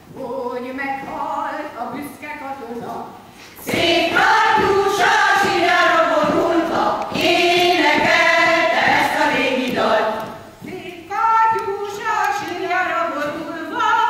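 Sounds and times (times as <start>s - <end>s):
women's folk choir singing: 3.6s - 14.0s.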